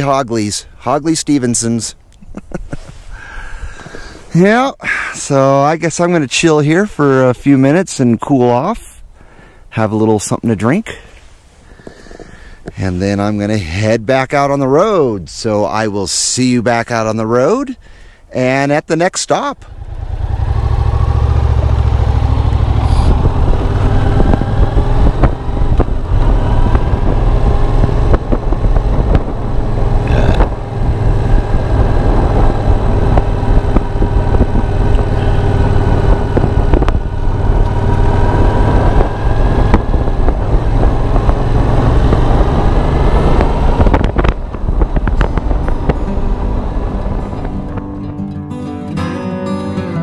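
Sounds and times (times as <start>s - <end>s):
motorcycle engine running: 19.7s - 48.4s
wind buffeting microphone: 19.9s - 48.3s.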